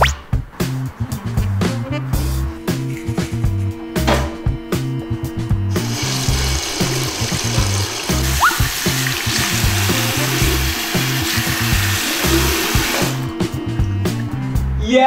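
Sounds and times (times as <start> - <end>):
background music with beat: 0.0 - 15.0
tap water running into sink: 5.7 - 13.3.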